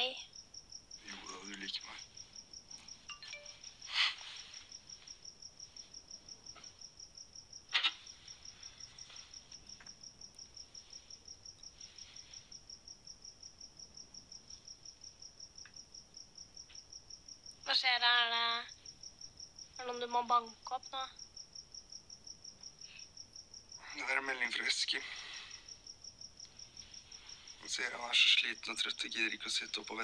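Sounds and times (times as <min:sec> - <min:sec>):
cricket chirping: 0:00.0 - 0:30.0
soft rustle: 0:02.0 - 0:06.8, 0:07.8 - 0:09.9, 0:10.6 - 0:12.5, 0:26.4 - 0:27.8
sharp click: 0:07.7 - 0:08.0.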